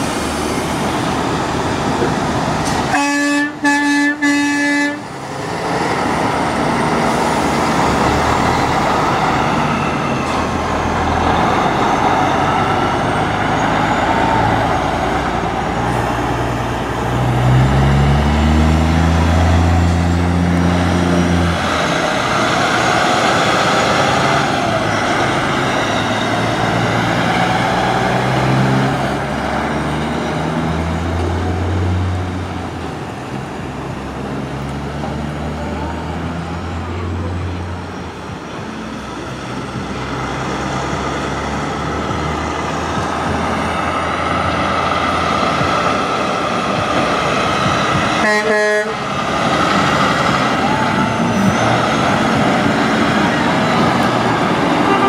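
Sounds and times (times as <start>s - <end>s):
diesel trucks accelerating past: 0.0s - 55.0s
truck air horn blast: 2.9s - 5.1s, 48.2s - 49.0s, 54.7s - 55.0s.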